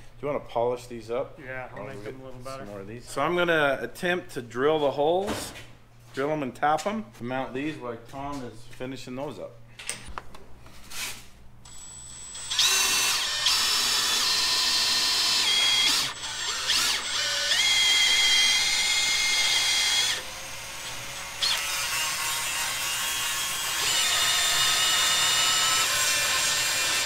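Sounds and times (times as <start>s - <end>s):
power drill drilling into steel: 11.7s - 27.0s.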